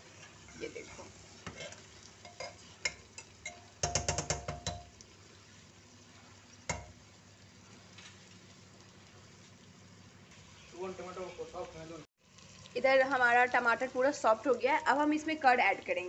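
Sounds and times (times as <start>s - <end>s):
metal spatula scraping a pot: 0.0s - 3.3s
faint sizzling: 0.0s - 16.0s.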